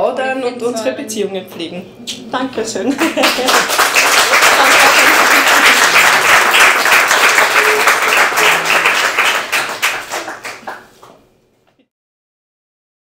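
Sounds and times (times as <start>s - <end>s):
audience applauding: 3.0s - 11.2s.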